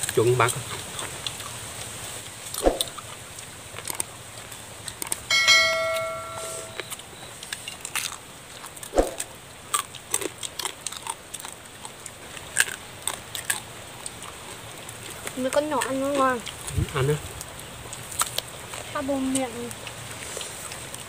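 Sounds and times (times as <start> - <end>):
metal bowl ringing: 5.3 - 7.0
crab shells cracking: 7.5 - 8.9, 9.7 - 16.7, 17.3 - 20.0.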